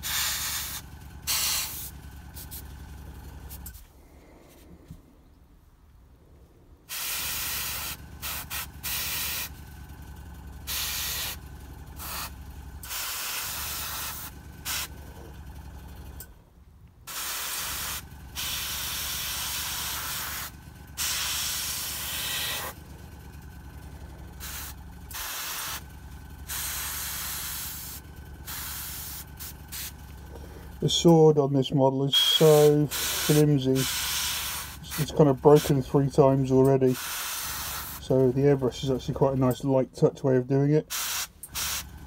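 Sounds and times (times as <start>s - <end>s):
airbrush spraying hiss: 0.0s - 2.7s, 6.9s - 9.5s, 10.7s - 11.4s, 12.0s - 12.3s, 12.9s - 14.9s, 17.1s - 22.8s, 24.4s - 25.8s, 26.5s - 29.9s, 32.5s - 35.1s, 36.9s - 38.0s, 40.9s - 41.8s
compressor humming: 0.0s - 42.0s.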